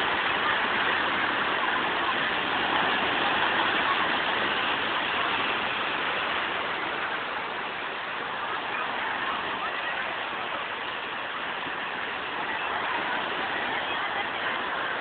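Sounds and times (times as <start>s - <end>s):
surf washing over concrete: 0.0s - 15.0s.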